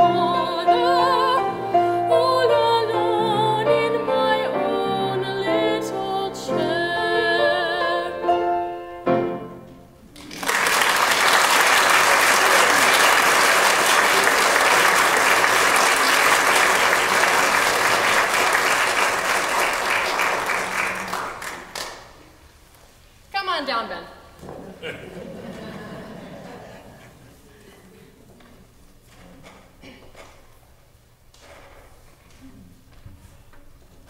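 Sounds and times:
woman singing classically: 0:00.0 - 0:08.6
piano accompaniment: 0:00.0 - 0:10.0
audience applauding: 0:10.1 - 0:22.2.

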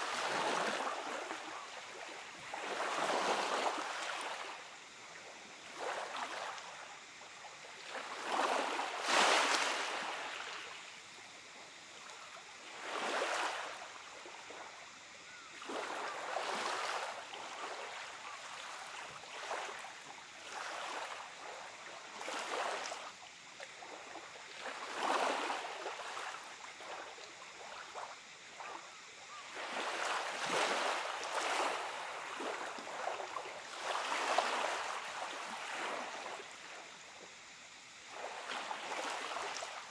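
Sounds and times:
waves lapping on gravel beach: 0:08.0 - 0:10.8.

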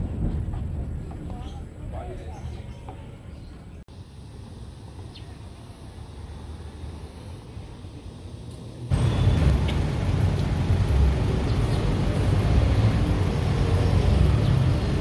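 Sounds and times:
faint outdoor ambience: 0:00.0 - 0:15.0
street traffic rumble: 0:00.0 - 0:15.0.

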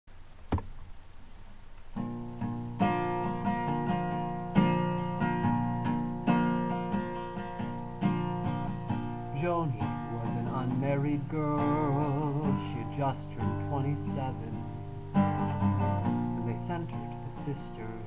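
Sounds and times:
acoustic guitar chords and picking: 0:00.4 - 0:18.0.

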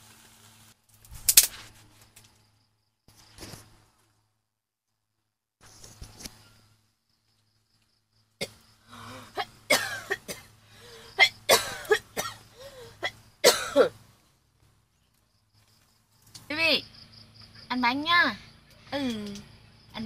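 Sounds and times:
person coughing: 0:09.3 - 0:10.5, 0:11.1 - 0:12.4, 0:13.0 - 0:14.0.

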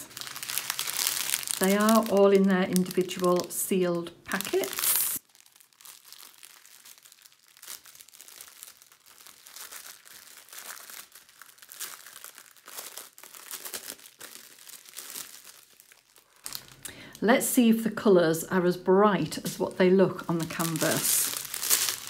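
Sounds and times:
plastic packaging crinkling: 0:00.0 - 0:17.0, 0:19.5 - 0:22.0.

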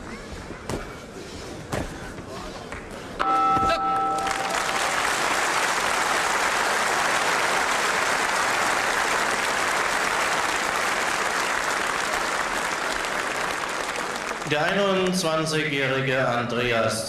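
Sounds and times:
boxing round bell ringing: 0:03.2 - 0:04.7
crowd applauding: 0:03.9 - 0:15.3.

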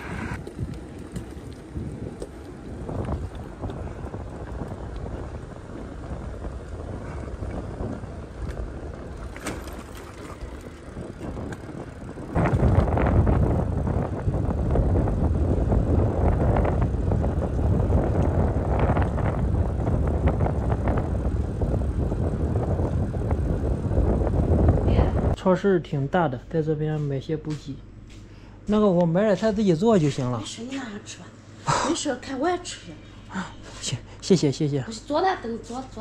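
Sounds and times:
wind buffeting microphone: 0:00.0 - 0:25.4.

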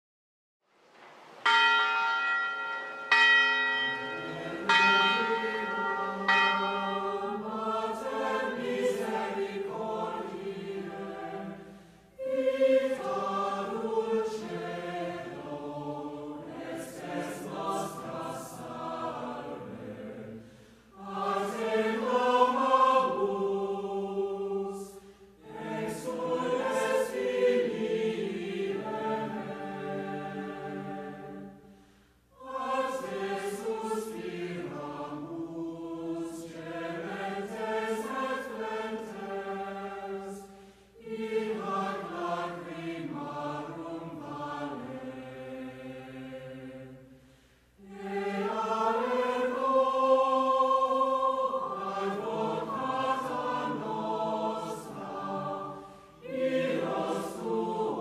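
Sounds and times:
bell ringing: 0:01.4 - 0:07.6
choir singing: 0:01.4 - 0:58.0.

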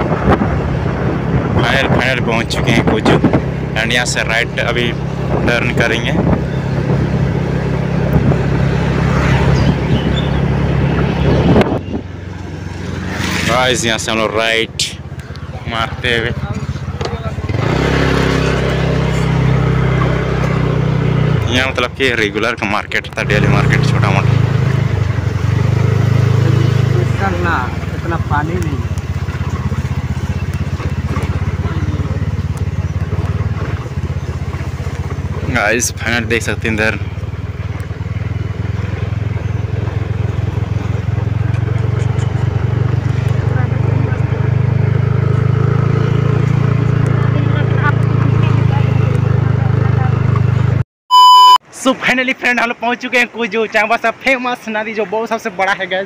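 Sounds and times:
wind rushing over microphone: 0:00.0 - 0:21.5
motorcycle engine running: 0:00.0 - 0:50.8.

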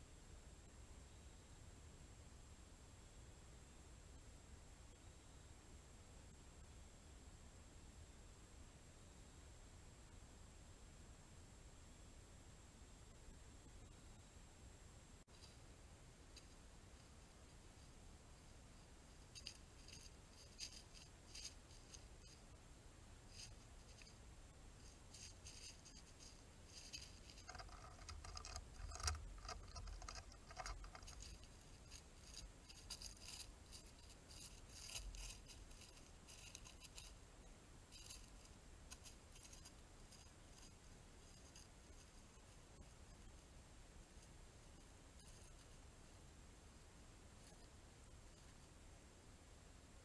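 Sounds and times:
dry leaves rustling: 0:16.3 - 0:22.5, 0:23.3 - 0:24.2, 0:24.8 - 0:37.2, 0:37.9 - 0:42.7.

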